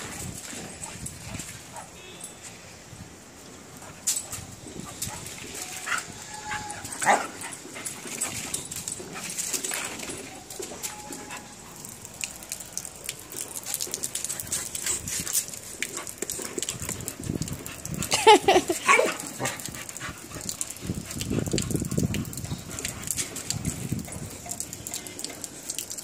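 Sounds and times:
puppy whining: 0:05.5 - 0:07.2.

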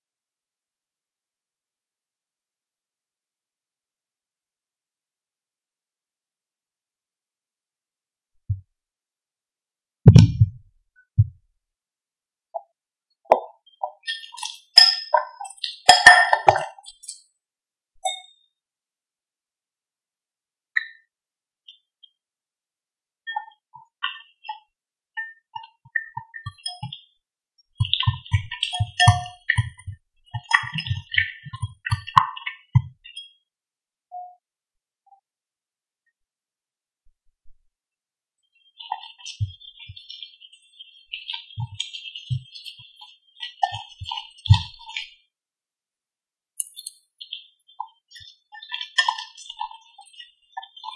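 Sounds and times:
metal clinking on glass: 0:14.8 - 0:16.8.

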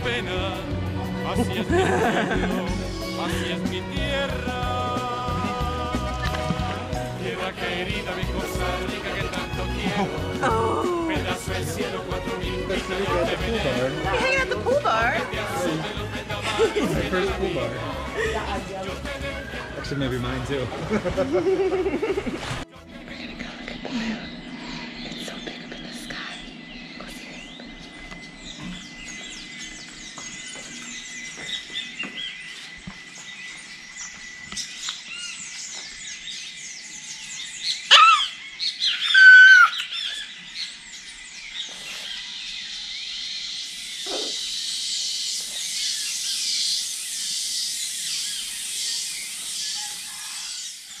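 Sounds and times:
pulsing high-pitched chorus: 0:01.6 - 0:21.0
birds chirping and whistling: 0:08.0 - 0:20.7, 0:23.1 - 0:51.0
loud bird calls falling in pitch: 0:37.9 - 0:40.2.

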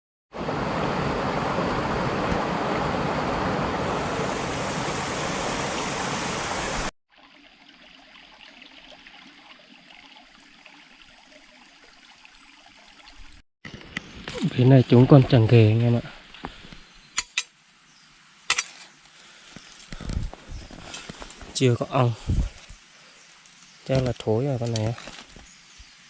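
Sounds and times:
rushing water: 0:00.4 - 0:13.4.

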